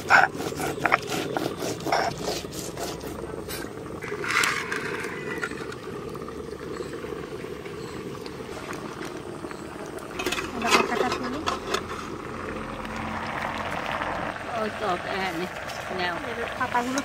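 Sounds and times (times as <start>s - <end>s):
stone pestle grinding: 0.0s - 3.2s.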